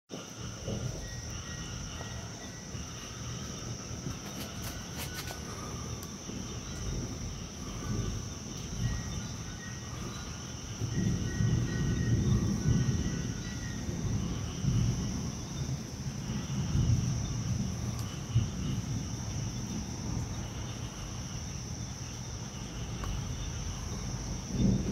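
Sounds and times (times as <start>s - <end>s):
high insect drone: 0.1s - 24.9s
insect chirping calls: 0.1s - 24.9s
low rumble of wind or thunder: 0.2s - 24.9s.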